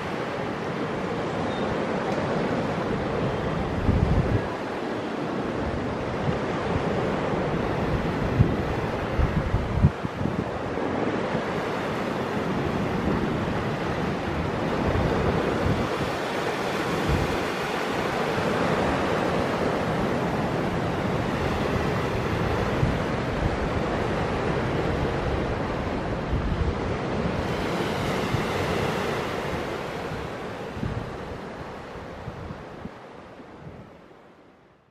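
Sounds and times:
small sea waves breaking: 0.0 - 33.6
wind gusting on microphone: 0.0 - 34.1.

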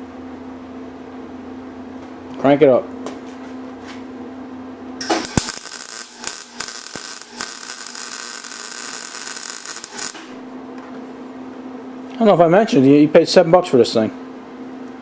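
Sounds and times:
electrical hum: 0.0 - 15.0
welder arc crackling: 5.0 - 10.4.

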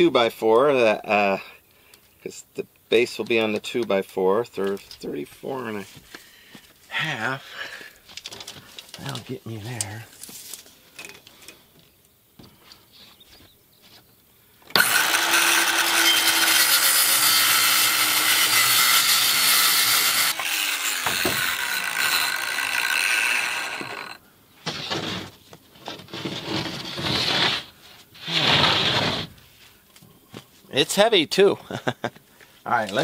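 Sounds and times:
circular saw cutting panel: 14.7 - 25.1.

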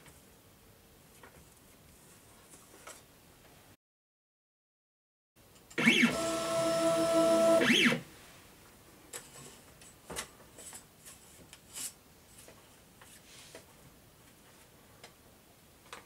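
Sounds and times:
stepper motors whining: 5.8 - 8.0.

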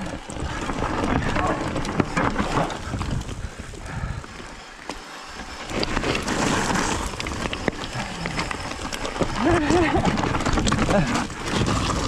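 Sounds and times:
bike clicks and rattles: 0.0 - 12.0
bike tyres skidding on dry dirt: 0.0 - 12.0
wind buffeting microphone: 0.2 - 4.5.

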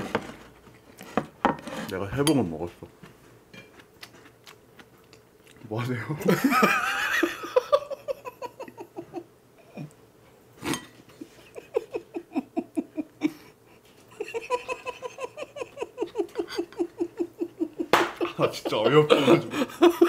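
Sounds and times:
men stifled chuckling: 6.2 - 10.0, 10.6 - 20.0.

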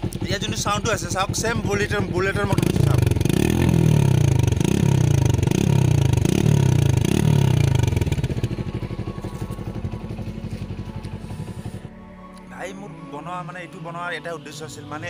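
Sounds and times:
motorcycle engine revving: 0.0 - 11.9
motorcycle engine idling: 0.0 - 12.0.

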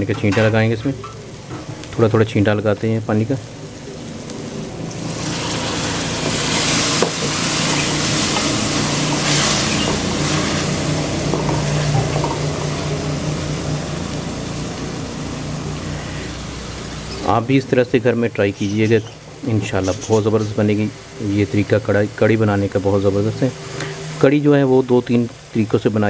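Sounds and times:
steady low hum: 0.0 - 24.0
masala sizzling in hot oil: 0.0 - 26.0
wooden spatula stirring: 5.1 - 12.6.

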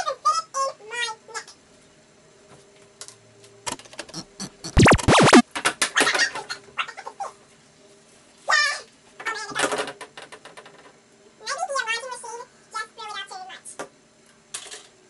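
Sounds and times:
electronic sweeping zap: 4.6 - 5.4.

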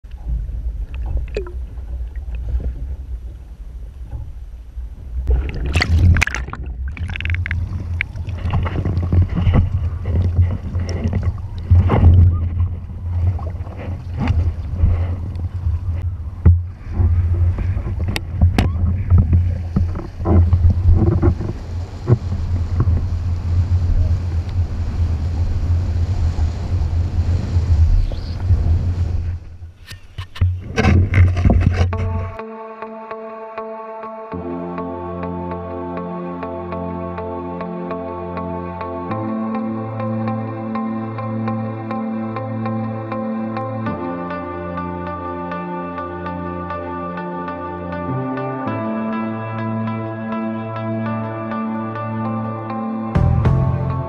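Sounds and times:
wind buffeting camera: 0.1 - 32.4
water rushing and splashing: 0.2 - 4.3, 5.0 - 32.4.

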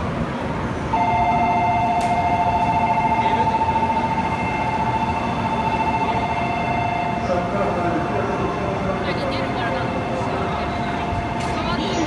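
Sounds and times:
low rumble of passing train: 0.0 - 12.0
two-tone electronic departure bell: 0.9 - 7.4.

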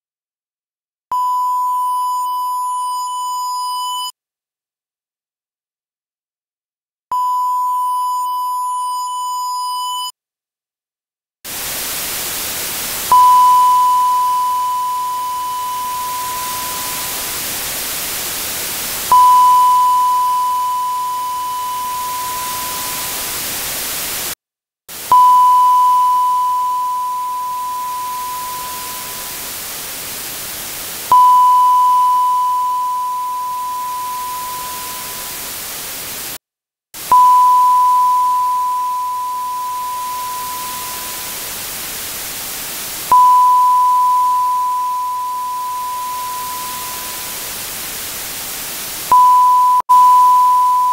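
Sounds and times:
clean beep: 1.1 - 4.1, 7.1 - 10.1, 13.1 - 17.5, 19.1 - 23.4, 25.1 - 29.6, 31.1 - 35.6, 37.1 - 41.5, 43.1 - 47.6, 49.1 - 50.9
high buzzy beep: 1.2 - 4.1, 13.1 - 17.4, 19.1 - 23.4, 25.1 - 29.5, 31.1 - 35.5, 37.1 - 41.5, 43.1 - 47.6, 49.1 - 50.9
dither noise hiss: 11.5 - 24.4, 26.0 - 36.4, 39.5 - 43.1, 44.2 - 49.1.

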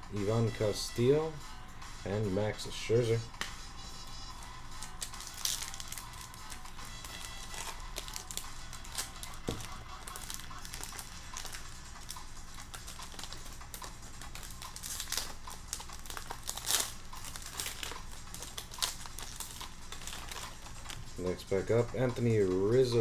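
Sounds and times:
wrapper crinkling and tearing: 4.6 - 21.4.

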